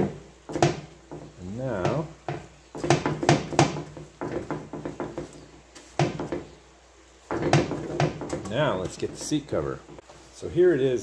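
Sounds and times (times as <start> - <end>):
foam knocking on workbench: 0.0 - 5.4, 6.0 - 6.6, 7.3 - 8.5.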